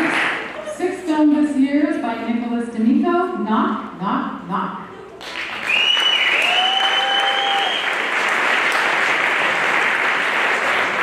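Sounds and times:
audience applause: 5.2 - 11.0
crowd cheering: 5.2 - 11.0
long high whistle: 5.7 - 8.0.

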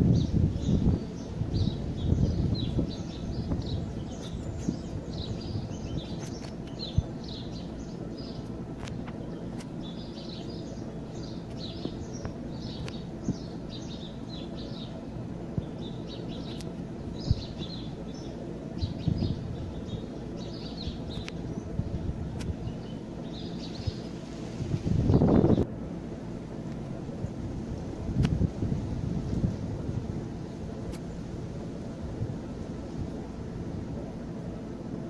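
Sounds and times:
small birds chirping: 0.0 - 25.7
low droning hum: 0.0 - 35.0.

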